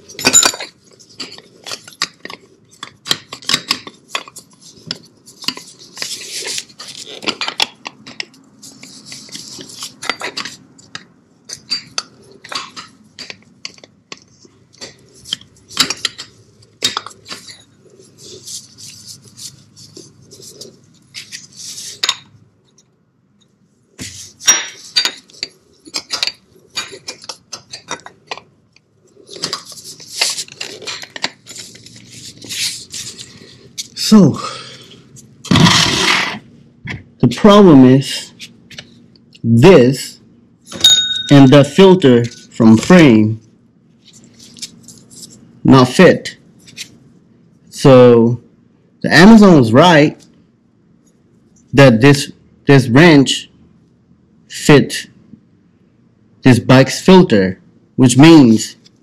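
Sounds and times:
metal clinks and scrapes: 0:00.0 - 0:22.4, 0:24.0 - 0:28.4, 0:40.7 - 0:42.8
rustling: 0:03.5 - 0:10.6.

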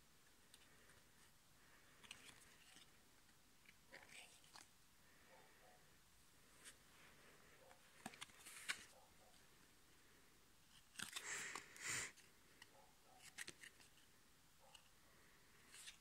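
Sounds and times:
card stack shuffling: 0:01.9 - 0:03.0, 0:07.9 - 0:09.0, 0:13.2 - 0:14.1
cards clicking: 0:13.2 - 0:14.0.

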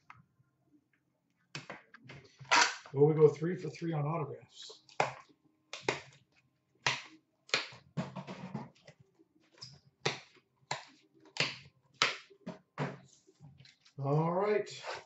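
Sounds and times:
trading cards clicking and snapping: 0:04.9 - 0:06.2, 0:06.8 - 0:07.9, 0:08.7 - 0:12.3.

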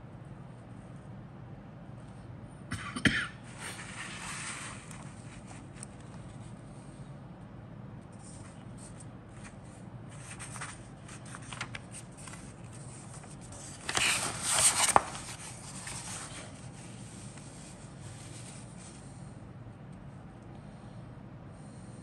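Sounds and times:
paper rustling: 0:08.2 - 0:19.1
page turning with snap: 0:10.2 - 0:16.0.

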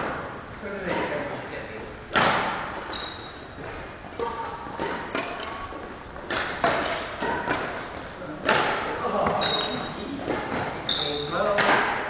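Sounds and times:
rackets hitting shuttlecock: 0:02.1 - 0:12.0
shoes squeaking on floor: 0:02.2 - 0:07.0, 0:09.1 - 0:11.5.

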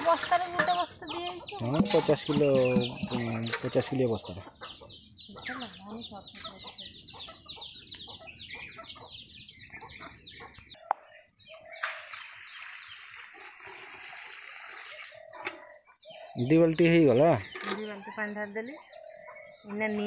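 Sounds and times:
chicks peeping: 0:00.1 - 0:11.9, 0:15.1 - 0:20.0
water pouring into metal pot: 0:11.8 - 0:15.2.

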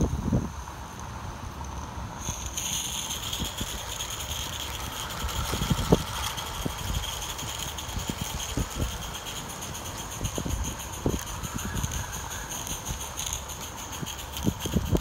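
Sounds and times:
rattle of locomotive and wagons: 0:00.0 - 0:15.0
steam hissing: 0:00.2 - 0:15.0
wind thumping on microphone: 0:04.8 - 0:09.2.

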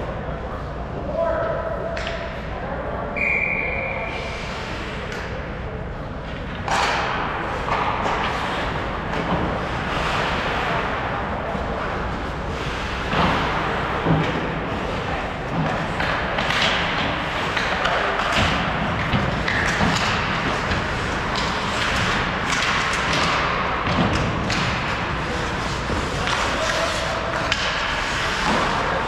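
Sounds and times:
hockey sticks and puck thudding: 0:06.2 - 0:29.0.

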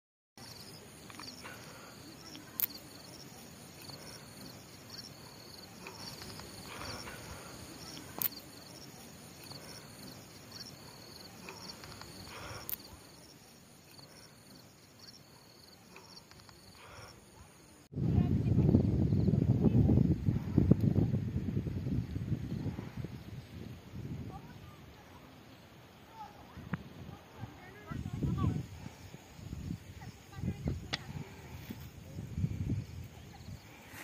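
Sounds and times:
insects chirping: 0:00.4 - 0:17.9, 0:18.6 - 0:34.0
sharp clicks: 0:02.3 - 0:02.8, 0:07.9 - 0:08.4, 0:11.4 - 0:12.9.

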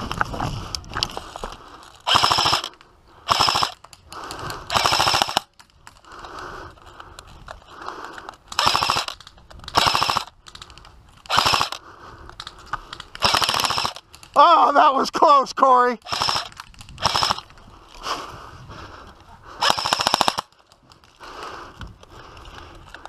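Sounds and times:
airsoft rifle firing bursts: 0:02.0 - 0:02.7, 0:03.3 - 0:03.8, 0:04.7 - 0:05.5, 0:08.5 - 0:10.4, 0:11.3 - 0:11.8, 0:13.2 - 0:14.0, 0:16.0 - 0:17.4, 0:19.6 - 0:20.6.

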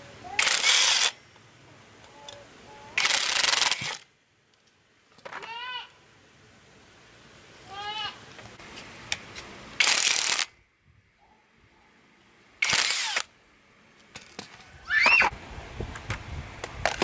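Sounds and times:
impact wrench bursts: 0:00.4 - 0:01.2, 0:03.0 - 0:04.1, 0:09.8 - 0:10.5, 0:12.6 - 0:13.3.

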